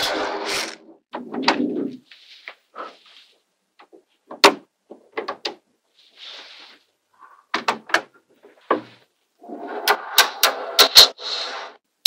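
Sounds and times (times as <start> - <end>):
soft rustle: 2.0 - 3.5.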